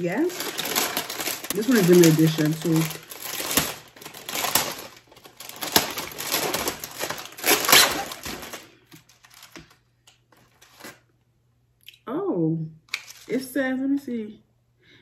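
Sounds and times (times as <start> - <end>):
plastic package crinkling: 0.0 - 11.1, 12.9 - 13.5.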